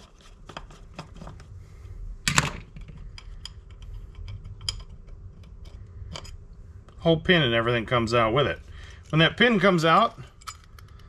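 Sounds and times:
fingers handling small parts: 8.9s - 11.0s.

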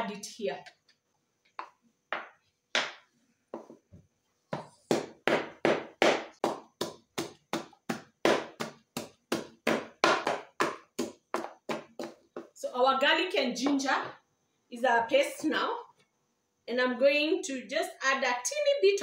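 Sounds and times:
pestle pounding in mortar: 4.6s - 12.6s.

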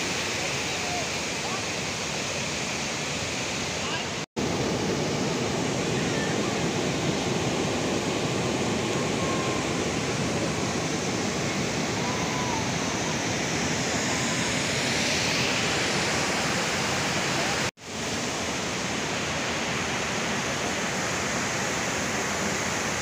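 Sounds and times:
waterfall rushing: 0.0s - 23.0s.

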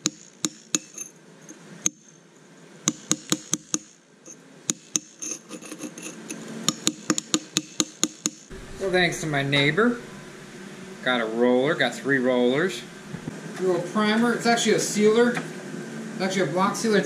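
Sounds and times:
hammer striking steel chisel: 0.0s - 1.1s, 1.8s - 2.1s, 2.9s - 4.0s, 4.7s - 8.9s.

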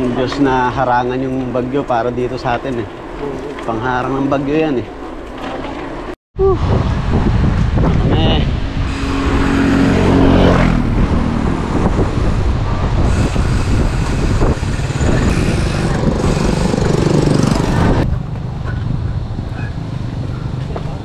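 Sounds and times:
wind buffeting microphone: 6.4s - 21.0s
vehicle engine passing: 6.8s - 21.0s.

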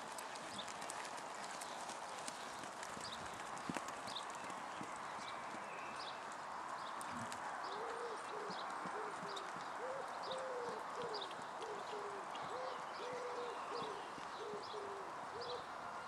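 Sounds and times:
dove cooing: 7.7s - 15.6s.

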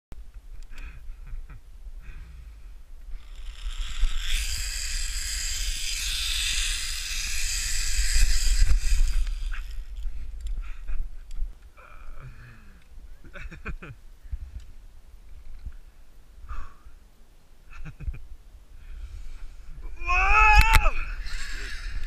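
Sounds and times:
zip-wire pulley whirring on cable: 3.2s - 10.1s, 20.3s - 22.0s.

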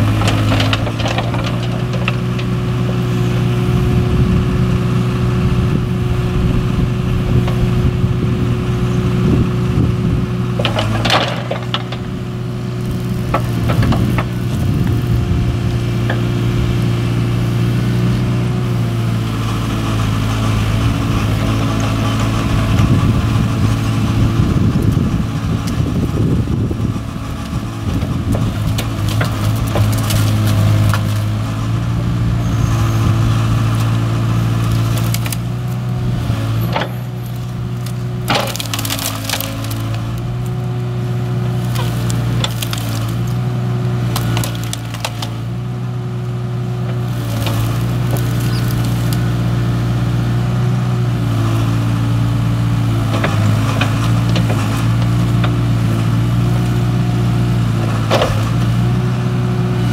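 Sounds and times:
wood cracking and snapping: 0.0s - 3.6s, 10.5s - 16.2s, 27.3s - 31.6s, 33.6s - 45.8s, 46.8s - 49.5s, 52.9s - 59.0s
excavator diesel engine running: 0.0s - 59.9s.

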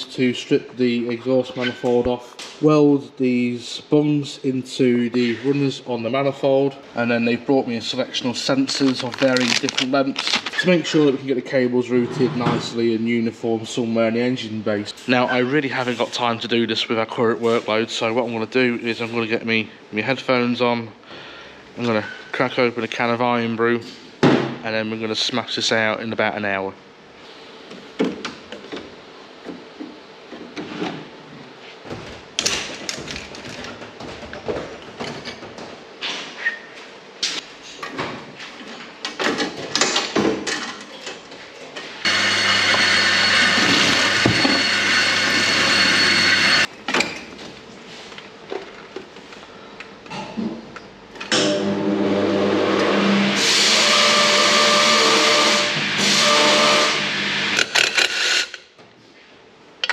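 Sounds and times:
cordless power tool running: 42.1s - 46.7s, 51.6s - 58.5s.

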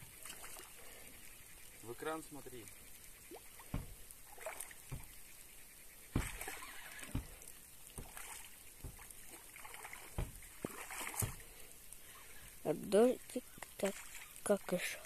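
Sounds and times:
water lapping and sloshing: 0.0s - 15.0s
soft knocks: 3.6s - 4.0s, 4.9s - 5.1s, 6.1s - 7.4s, 8.0s - 9.0s, 10.1s - 10.4s.

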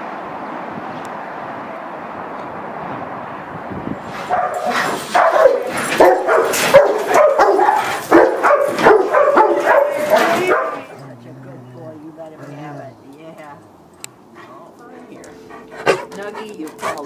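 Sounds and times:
dog barking and yipping: 4.1s - 11.0s, 15.5s - 17.0s.

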